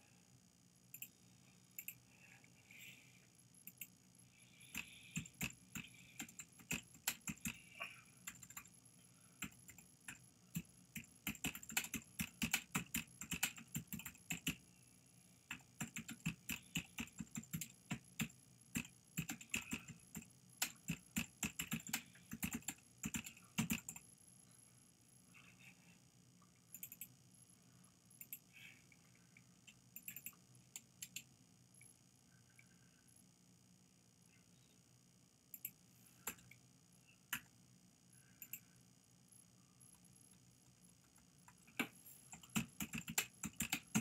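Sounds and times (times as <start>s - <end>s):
keyboard typing clicks: 0.9s - 1.1s, 4.7s - 7.6s, 9.4s - 14.6s, 15.5s - 24.0s, 29.6s - 31.3s, 41.4s - 44.0s.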